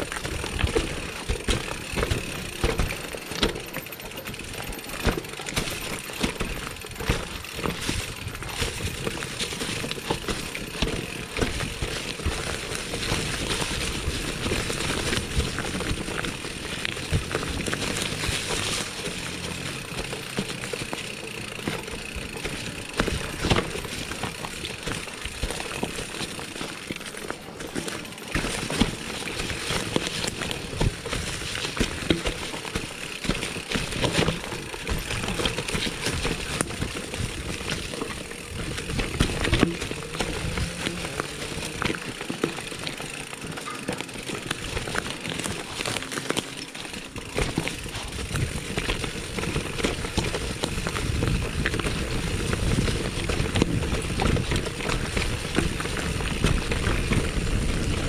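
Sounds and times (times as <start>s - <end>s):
bike rattling and clicking: 0.0s - 58.0s
bike tyres on dirt trail: 0.0s - 58.0s
wind rumble on microphone: 48.2s - 58.0s.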